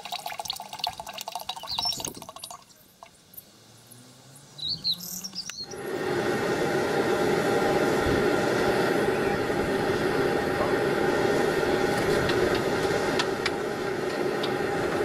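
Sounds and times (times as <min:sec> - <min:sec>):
oil pouring into a tank: 0:00.0 - 0:02.8
bird chirps: 0:01.5 - 0:05.8
forge roaring: 0:05.7 - 0:15.0.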